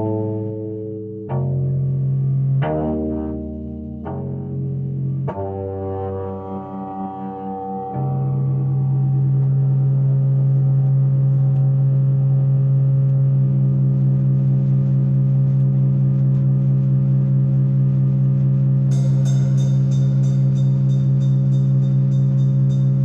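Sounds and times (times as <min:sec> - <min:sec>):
electronic keyboard drone: 0:00.0 - 0:23.0
fast ticking beat: 0:18.9 - 0:23.0.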